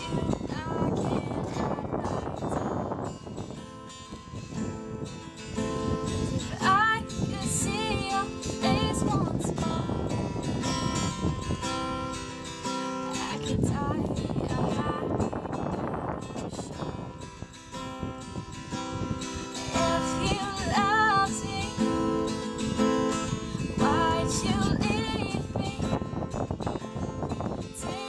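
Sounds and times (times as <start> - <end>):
woman singing: 0.0 - 3.1, 6.1 - 10.5, 13.1 - 17.0, 19.5 - 26.4, 27.6 - 28.0
acoustic guitar strummed: 0.0 - 28.0.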